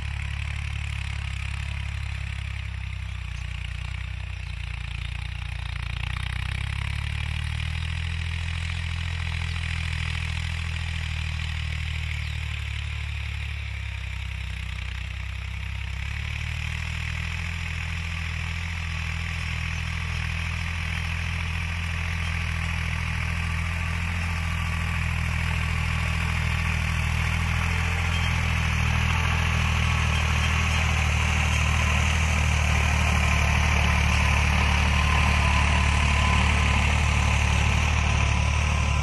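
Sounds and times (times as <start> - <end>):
tractor diesel engine: 0.0 - 39.0
blades churning soil: 16.0 - 39.0.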